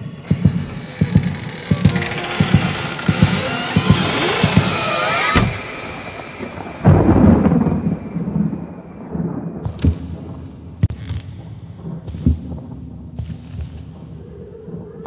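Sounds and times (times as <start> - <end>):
thunder rumbling: 0.0 - 10.9
thunder crack: 1.8 - 10.8.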